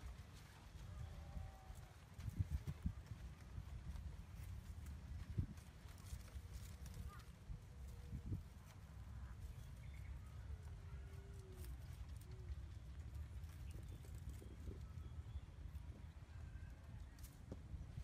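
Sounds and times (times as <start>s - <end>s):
low outdoor rumble: 0.0s - 18.0s
leaves rustling and twigs snapping: 11.0s - 14.9s.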